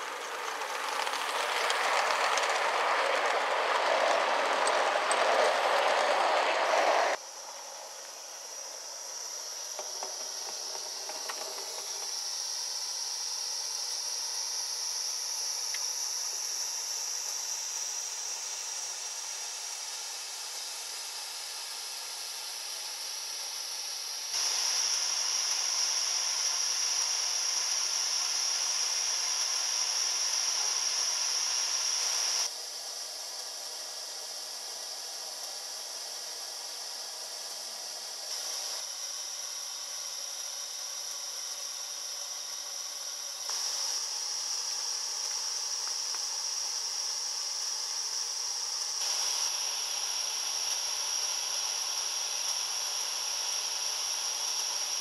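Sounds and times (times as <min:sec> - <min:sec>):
model coaches rolling on track: 0:00.0 - 0:07.2, 0:09.8 - 0:12.1
steam hiss: 0:00.0 - 0:55.0.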